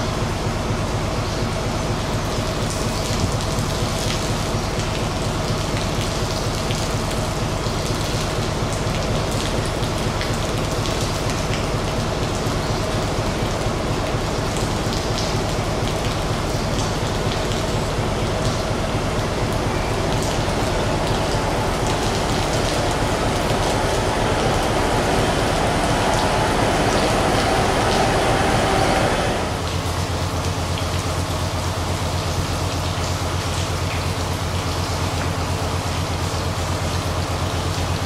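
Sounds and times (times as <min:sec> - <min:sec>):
diesel train engine: 0:00.0 - 0:38.0
rain pattering on canopy: 0:02.2 - 0:38.0
train wheel noise: 0:17.0 - 0:31.2.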